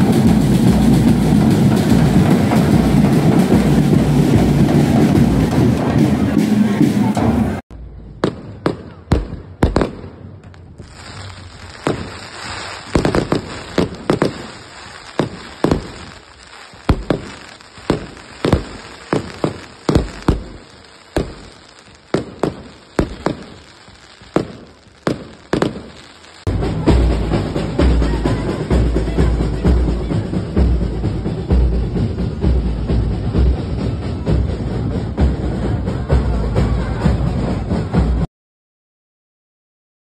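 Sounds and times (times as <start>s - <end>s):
fireworks bangs: 0.0s - 33.6s
steady hiss: 10.5s - 27.8s.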